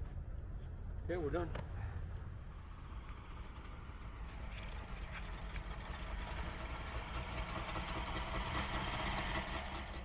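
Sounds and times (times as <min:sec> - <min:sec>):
two-stroke car engine running: 0:02.4 - 0:10.0.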